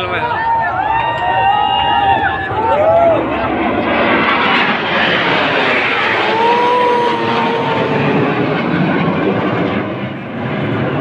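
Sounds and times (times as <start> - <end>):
jet engines roaring overhead: 0.0 - 11.0.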